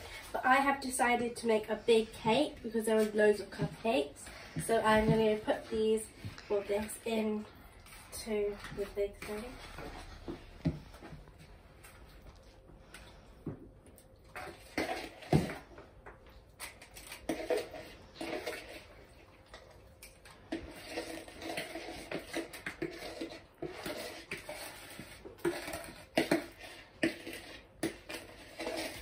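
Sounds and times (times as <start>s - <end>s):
spatula scraping bowl: 0.0s - 11.1s, 16.7s - 19.6s, 20.2s - 29.0s.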